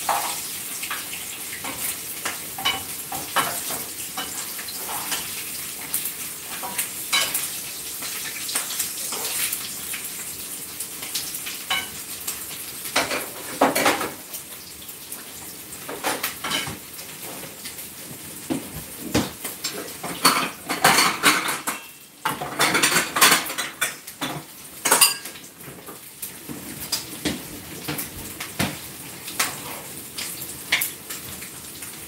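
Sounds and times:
meat sizzling in oil: 0.0s - 32.0s.

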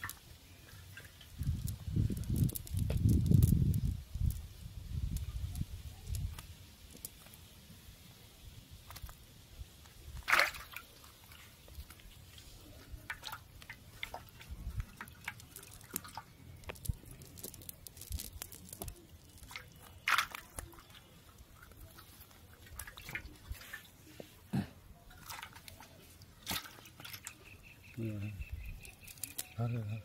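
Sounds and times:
fish flapping and splashing: 0.0s - 7.4s, 9.8s - 24.1s, 25.1s - 27.6s, 28.8s - 29.6s
fishing net rustling: 10.0s - 27.4s.

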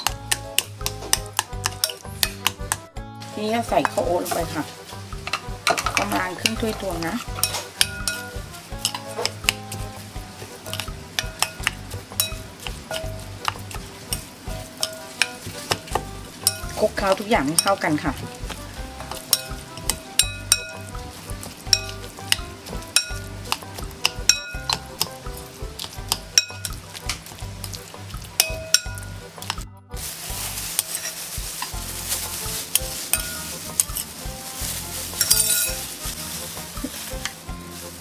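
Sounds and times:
plastic gloves rustling: 0.0s - 38.0s
metal spoon clinking on glass bowl: 7.4s - 9.4s, 10.7s - 16.8s, 19.1s - 20.9s, 21.7s - 25.2s, 26.1s - 26.8s, 28.4s - 29.1s, 35.2s - 35.8s.

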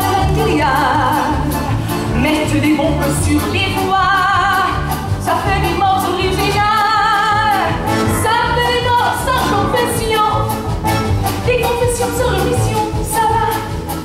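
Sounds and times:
keyboard: 0.0s - 14.0s
upright double bass: 0.0s - 14.0s
woman singing with vibrato: 0.0s - 14.0s.

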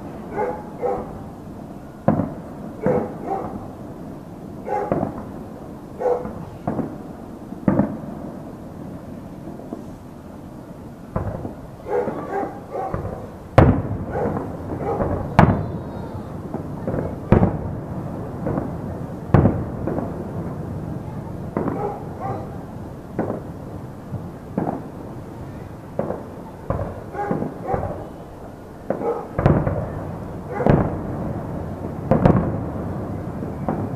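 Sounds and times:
distant fireworks bangs: 0.0s - 33.9s
fireworks pops and crackles: 0.0s - 33.9s.

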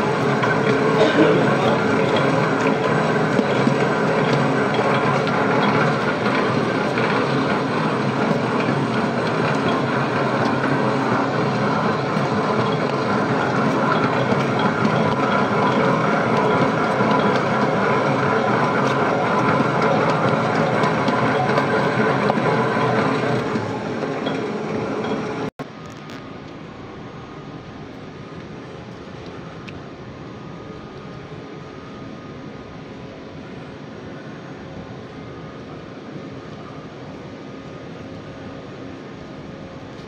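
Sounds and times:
stand mixer motor droning: 0.0s - 25.5s.

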